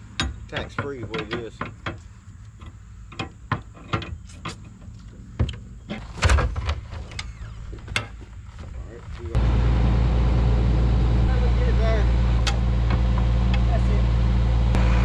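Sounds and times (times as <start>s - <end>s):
truck engine and hydraulics running: 0.0s - 15.0s.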